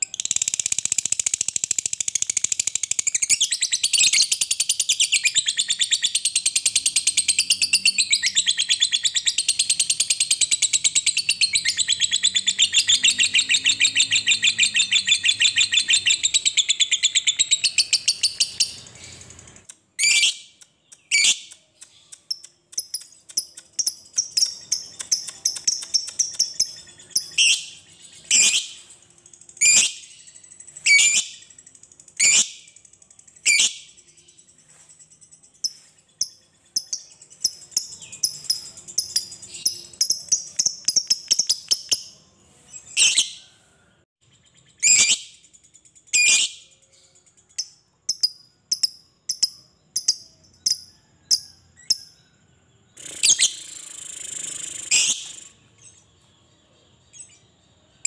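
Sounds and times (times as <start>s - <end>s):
lovebird chattering trill: 0.0s - 33.9s
soft ticking bird notes: 0.0s - 42.2s, 44.4s - 52.2s
sharp bird chirps: 0.0s - 58.0s.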